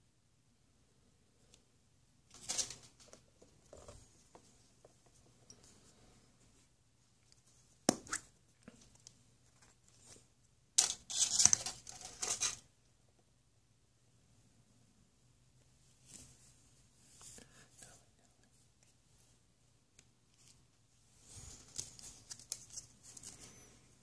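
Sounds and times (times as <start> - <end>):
hands rustling plastic capsule: 21.2 - 23.8.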